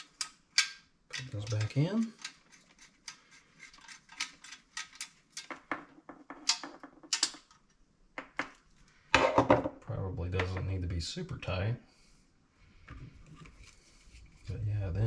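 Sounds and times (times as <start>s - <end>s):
nut driver metallic clicks and scrapes: 0.0s - 5.5s.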